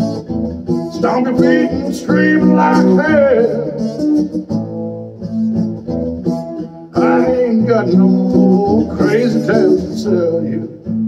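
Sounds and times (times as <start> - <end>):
acoustic guitar strumming: 0.0 - 11.0
man singing country song: 0.8 - 4.2, 6.9 - 11.0.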